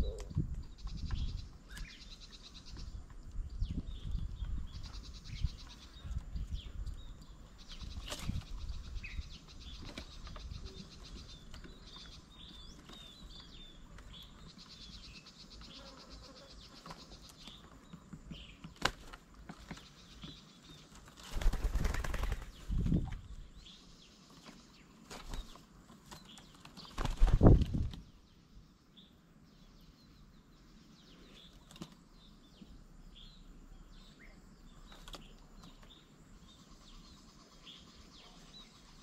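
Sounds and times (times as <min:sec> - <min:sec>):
small bird chirps: 0:00.0 - 0:39.0
bird wings flapping: 0:18.7 - 0:19.8, 0:20.9 - 0:23.2, 0:25.0 - 0:28.0.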